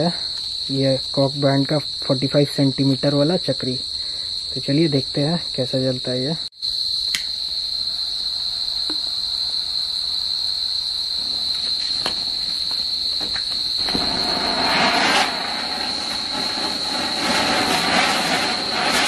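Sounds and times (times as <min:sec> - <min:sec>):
crickets chirping: 0:00.0 - 0:19.0
firework spark spray hissing: 0:11.4 - 0:19.0.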